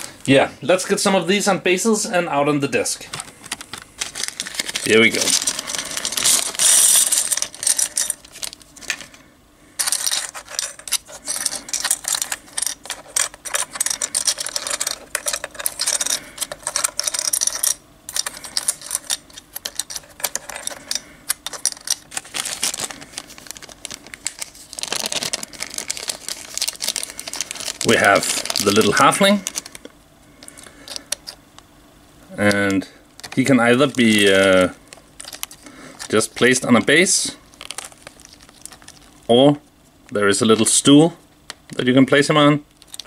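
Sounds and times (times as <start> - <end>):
plastic bases clattering: 3.0 - 9.2, 9.8 - 31.4, 32.5 - 36.9
plastic bag crinkling: 3.1 - 9.2, 9.8 - 31.4, 32.4 - 39.3, 42.7 - 43.0.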